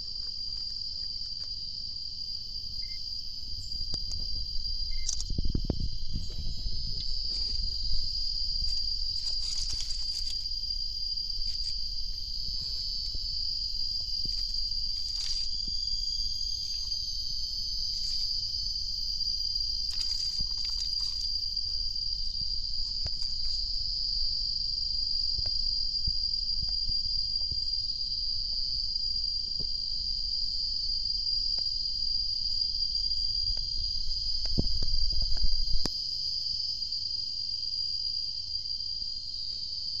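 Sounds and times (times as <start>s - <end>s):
high-pitched insect drone: 0.0s - 40.0s
low rumble: 2.6s - 9.8s.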